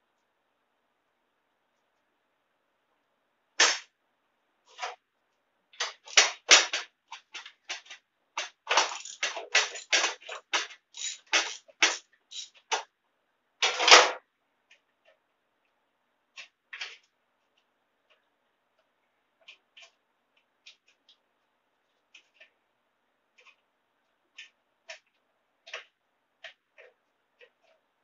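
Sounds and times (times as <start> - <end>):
tools clicking and rattling on metal: 5.8 - 12.9.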